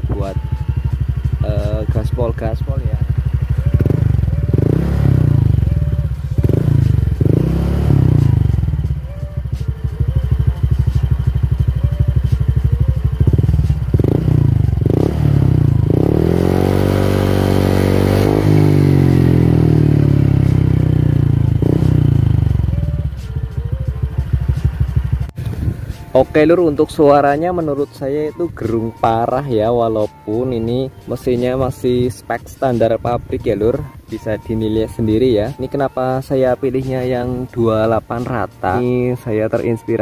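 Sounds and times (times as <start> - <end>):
scooter engine revving: 0.0 - 26.0.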